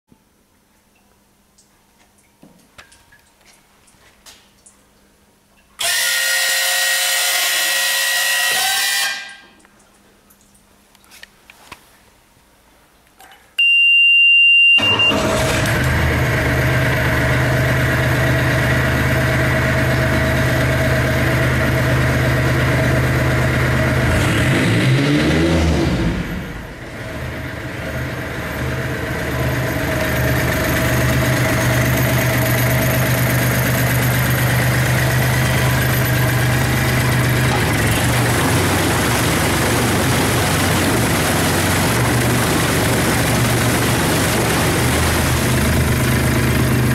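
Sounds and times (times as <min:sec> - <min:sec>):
high beep: 0:13.6 - 0:15.2
diesel outboard engine running: 0:14.9 - 0:25.1, 0:26.0 - 0:46.9
propeller churning water: 0:15.1 - 0:25.3, 0:26.1 - 0:46.9.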